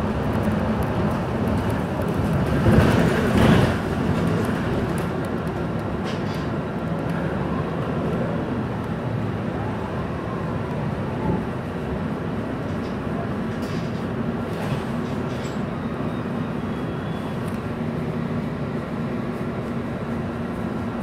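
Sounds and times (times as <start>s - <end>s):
rattling in bus cabin: 0.0s - 10.0s, 10.6s - 21.0s
bus engine drone: 0.0s - 21.0s
road noise: 0.0s - 21.0s.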